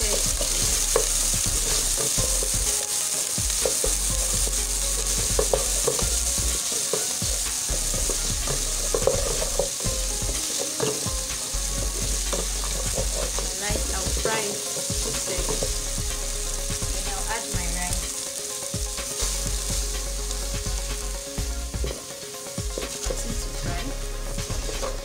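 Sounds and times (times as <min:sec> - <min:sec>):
onions sizzling in oil: 0:00.0 - 0:25.0
wooden spatula scraping a pot: 0:03.6 - 0:11.1, 0:11.9 - 0:15.8.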